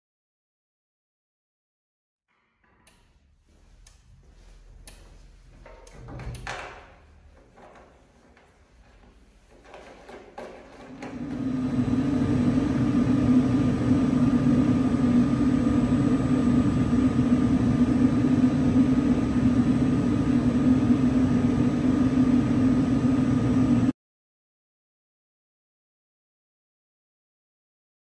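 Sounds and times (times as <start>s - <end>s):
fan humming: 2.6s - 23.9s.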